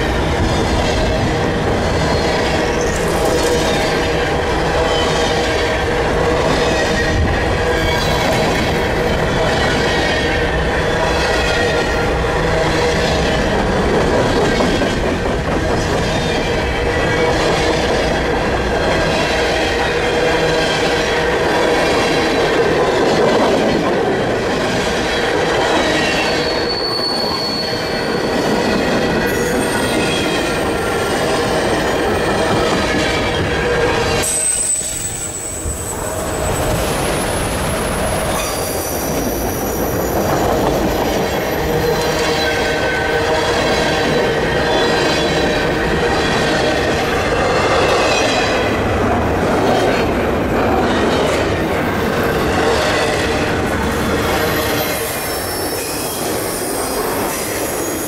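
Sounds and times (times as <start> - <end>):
train wheels rolling on rails: 0.0 - 58.0
high-pitched wheel squeals: 25.9 - 31.1, 32.2 - 42.6, 54.2 - 58.0.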